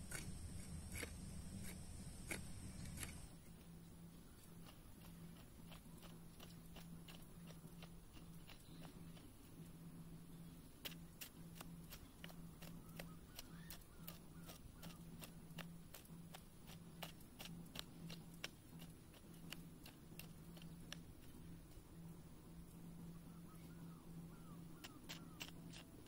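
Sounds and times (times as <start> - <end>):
hoe scraping dry soil: 0.0 - 23.1, 24.4 - 26.0
low hum: 0.0 - 26.0.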